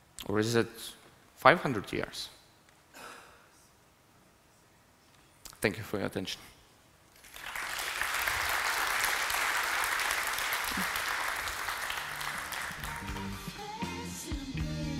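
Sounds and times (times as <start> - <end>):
audience applauding: 7.2 - 13.6
music: 12.0 - 14.9.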